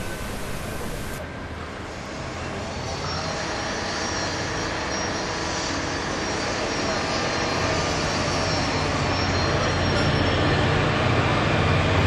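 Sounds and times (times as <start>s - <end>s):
engine rumble: 0.0s - 1.2s
outdoor city noise: 0.0s - 12.0s.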